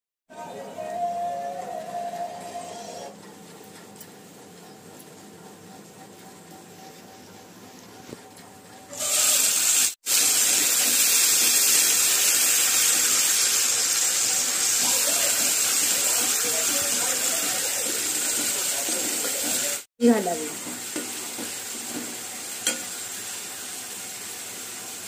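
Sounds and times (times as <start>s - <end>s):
paste sizzling in hot oil: 9.0s - 25.0s.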